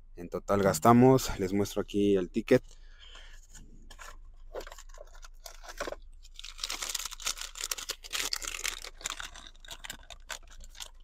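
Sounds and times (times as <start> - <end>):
paper receipt rustling: 3.9 - 11.0.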